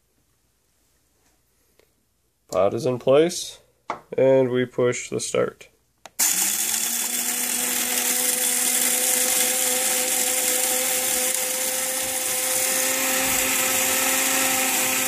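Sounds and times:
coffee grinder grinding beans: 0:06.2 - 0:15.0.

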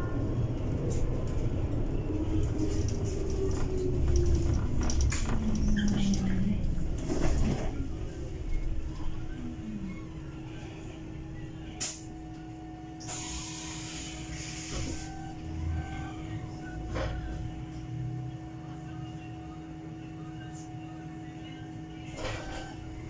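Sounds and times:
electric bus drone and whine: 0:00.0 - 0:23.0
short air hisses: 0:13.0 - 0:14.9.

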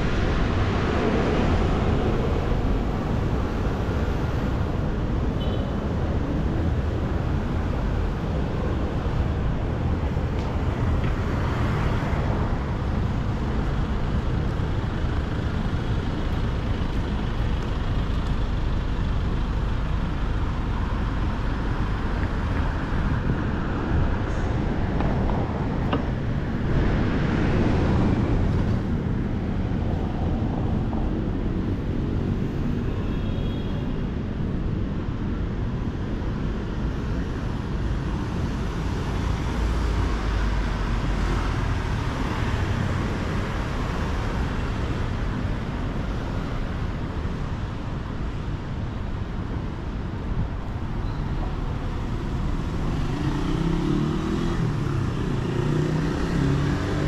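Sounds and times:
city street traffic: 0:00.0 - 0:57.0
loud vehicle passing: 0:23.6 - 0:29.8, 0:52.1 - 0:57.0.

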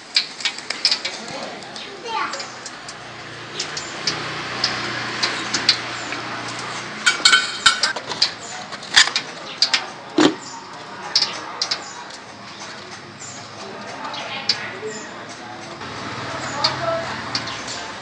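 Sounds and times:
metal utensils clinking on pots: 0:04.7 - 0:14.1
ringing metallic rattle: 0:07.0 - 0:08.0.

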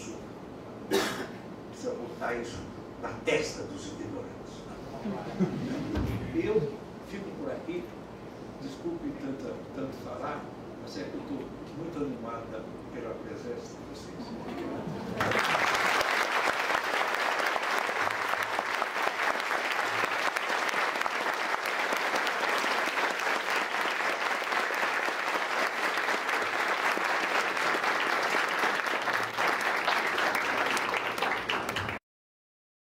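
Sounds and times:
audience applauding: 0:15.1 - 0:32.0.

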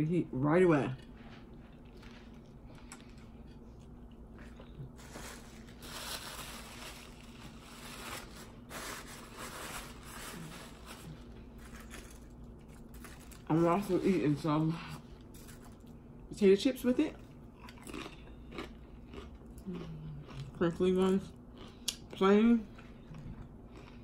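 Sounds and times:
person chewing food: 0:01.0 - 0:05.2, 0:17.3 - 0:20.7, 0:21.5 - 0:24.0
paper napkin crumpling: 0:05.0 - 0:14.3.

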